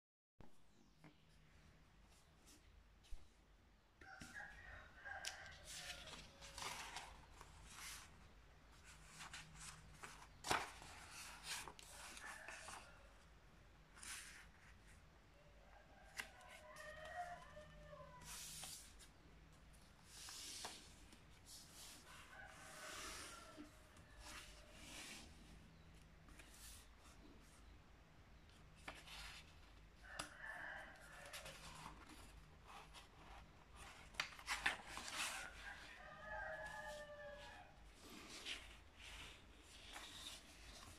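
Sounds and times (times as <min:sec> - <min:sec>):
paper crinkle: 0:05.7 - 0:08.1, 0:08.9 - 0:12.9
paper rustling and sliding: 0:05.7 - 0:08.2, 0:08.8 - 0:12.8, 0:20.0 - 0:23.4.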